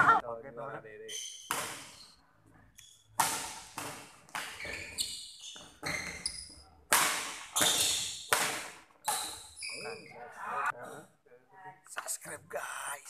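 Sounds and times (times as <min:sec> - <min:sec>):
shoes squeaking on court: 0:01.1 - 0:11.0
racket hitting shuttlecock: 0:01.4 - 0:02.0, 0:03.1 - 0:09.5.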